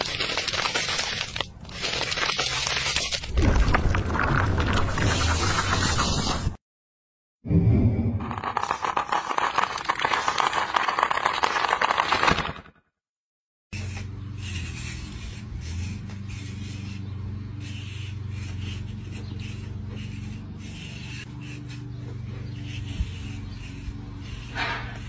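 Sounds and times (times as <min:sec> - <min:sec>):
hand tool scraping render: 0:18.1 - 0:25.0.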